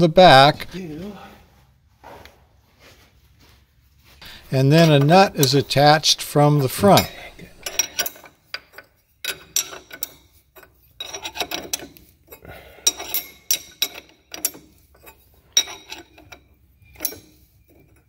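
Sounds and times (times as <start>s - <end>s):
wrench metallic clicking: 4.6s - 18.0s.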